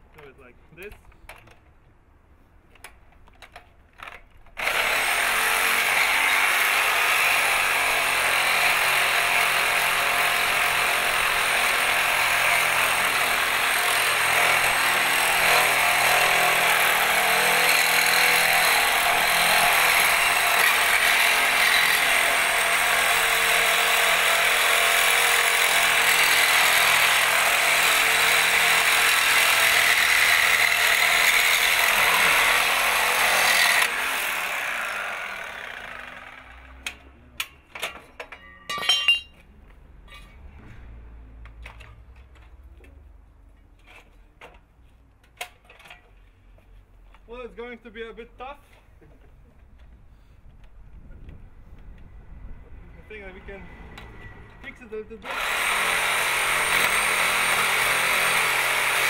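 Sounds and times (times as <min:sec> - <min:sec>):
reciprocating saw cutting metal pipe: 0:04.6 - 0:36.6, 0:55.2 - 0:59.0.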